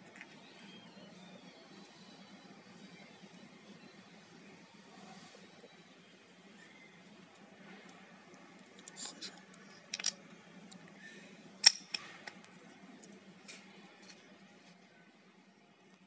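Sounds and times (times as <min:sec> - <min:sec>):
metal parts clicking: 0:08.8 - 0:10.2, 0:11.6 - 0:12.4.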